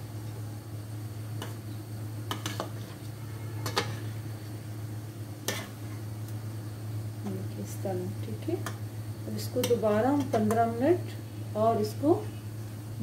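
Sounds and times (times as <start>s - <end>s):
steady low hum: 0.0s - 13.0s
metal spatula scraping steel pan: 2.4s - 4.2s.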